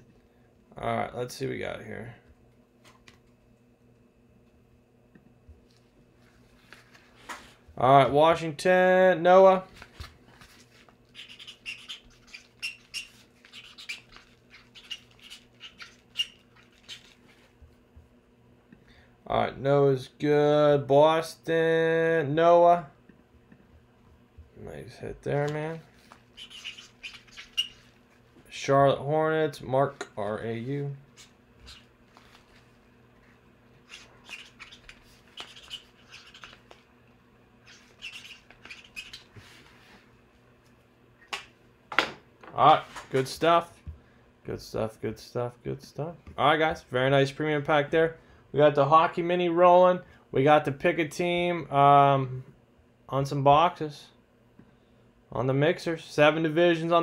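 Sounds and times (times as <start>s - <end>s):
steady low hum: 0.0s - 57.0s
cards rubbing and scraping: 9.8s - 17.6s, 25.8s - 28.2s, 33.8s - 36.8s, 37.6s - 39.8s.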